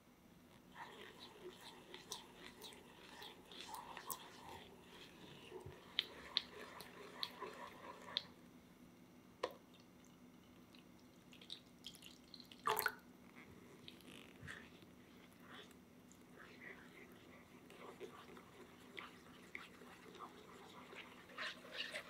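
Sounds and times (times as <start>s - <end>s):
milk pouring and splashing: 0.8s - 8.3s, 9.7s - 13.1s.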